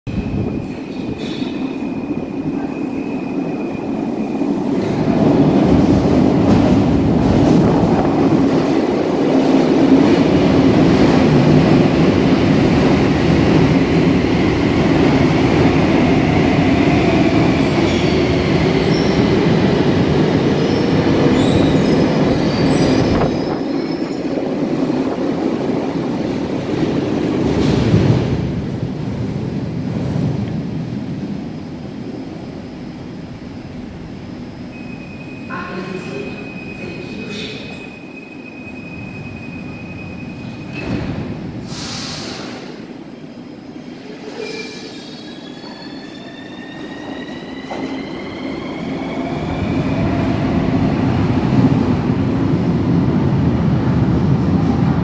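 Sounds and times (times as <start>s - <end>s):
train wheels rumbling on rails: 0.1s - 38.0s.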